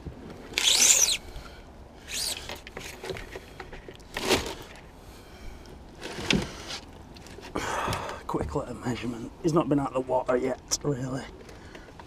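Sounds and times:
measuring tape pulled from reel: 0.6s - 1.2s.

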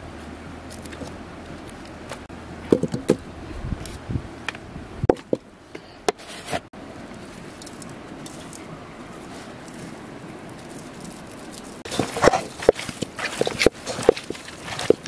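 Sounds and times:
wet squelches: 7.2s - 15.0s.

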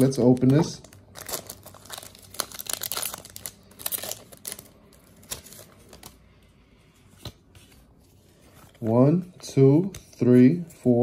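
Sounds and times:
foil wrapper tearing and crinkling: 0.0s - 6.1s.

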